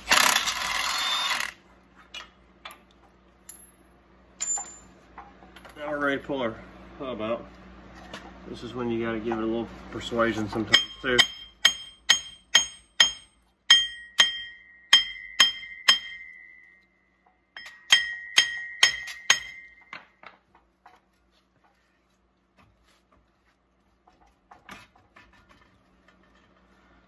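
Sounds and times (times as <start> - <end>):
hammer striking metal: 10.6 - 16.8, 17.6 - 20.1.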